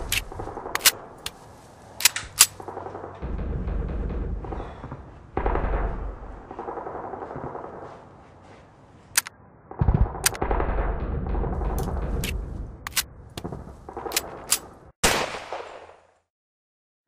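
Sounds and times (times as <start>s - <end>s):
heavy low boom: 3.1s - 7.6s, 9.7s - 13.7s.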